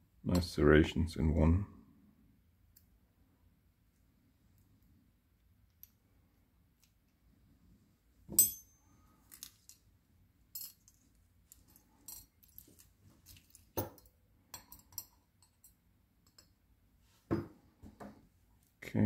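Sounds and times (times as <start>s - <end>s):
metal clink with ring: 8.3s - 9.8s, 10.5s - 11.0s, 11.7s - 12.6s, 13.8s - 16.5s
small metal clicks and clinks: 8.4s - 9.9s, 10.5s - 16.6s.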